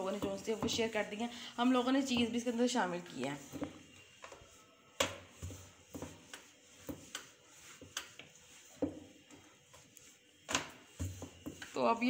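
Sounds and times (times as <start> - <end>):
rolling pin knocking on board: 0.1 - 0.9, 2.0 - 2.5.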